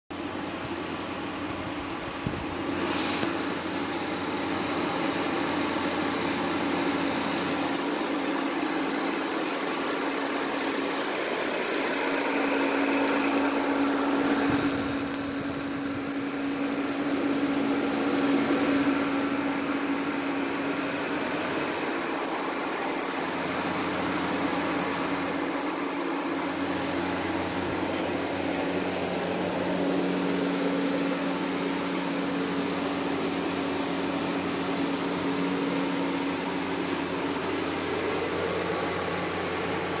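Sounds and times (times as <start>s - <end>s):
rushing air: 2.5s - 3.8s
fan motor hum: 11.3s - 40.0s.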